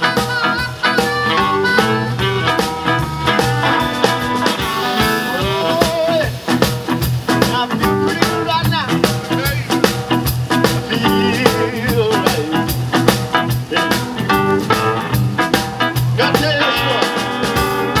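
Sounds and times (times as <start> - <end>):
harmonica: 0.0 - 6.3, 16.2 - 18.0
live blues band playing: 0.0 - 18.0.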